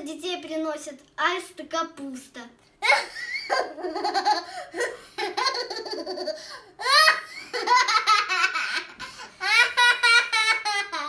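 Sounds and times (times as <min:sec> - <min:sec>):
girl laughing: 0:02.8 - 0:11.0.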